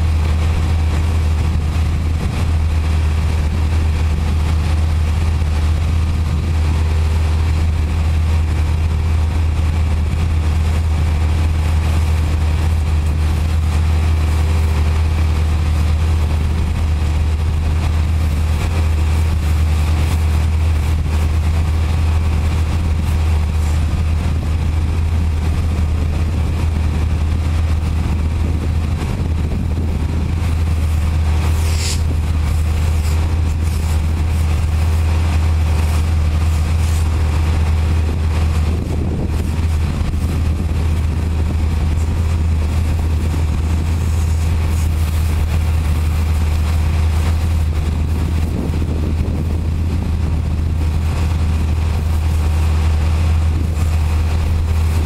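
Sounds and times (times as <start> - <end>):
engine idling: 0.0 - 55.0
pressure washer spraying water: 11.6 - 48.4.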